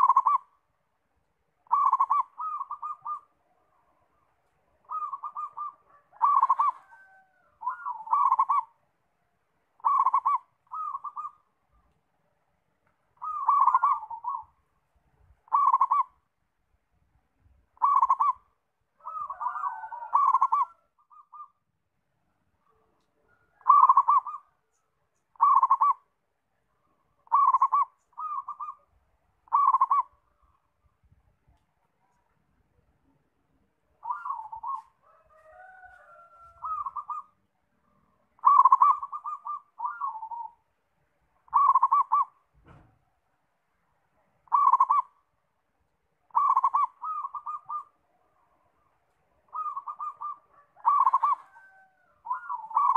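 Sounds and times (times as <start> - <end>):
dove cooing: 0.0 - 0.6, 1.6 - 8.8, 9.8 - 11.8, 13.2 - 14.6, 15.4 - 16.2, 17.8 - 21.6, 22.6 - 24.6, 25.3 - 26.1, 26.9 - 30.7, 33.9 - 40.7, 41.4 - 42.8, 44.4 - 45.3, 46.3 - 52.9.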